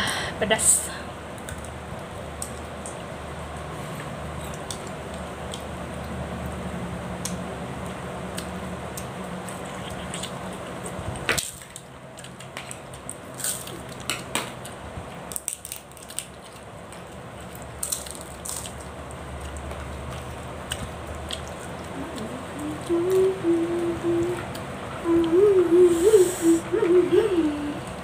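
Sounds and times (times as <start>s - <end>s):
steady low hum: 0.0s - 28.0s
lip smacks: 8.3s - 11.3s
wet chewing: 8.3s - 23.2s.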